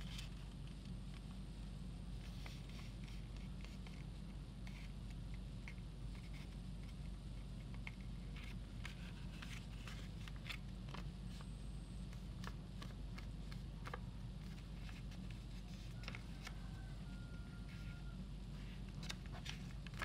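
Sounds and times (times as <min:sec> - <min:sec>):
steady low hum: 0:00.0 - 0:20.0
paper rustling and crinkling: 0:07.7 - 0:11.1, 0:12.2 - 0:16.8, 0:17.7 - 0:20.0.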